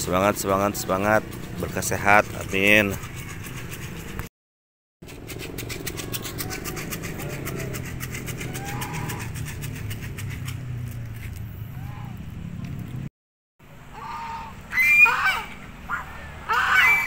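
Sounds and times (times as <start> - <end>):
engine humming: 5.0 - 17.0.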